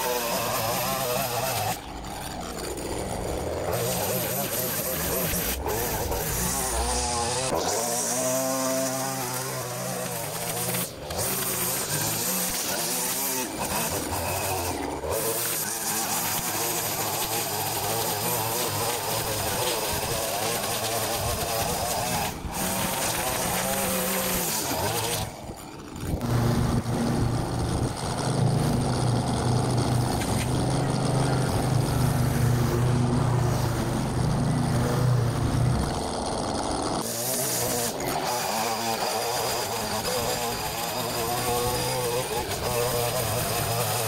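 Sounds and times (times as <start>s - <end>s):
line trimmer cutting grass: 0.0s - 44.0s
deeper steady engine: 25.2s - 38.0s.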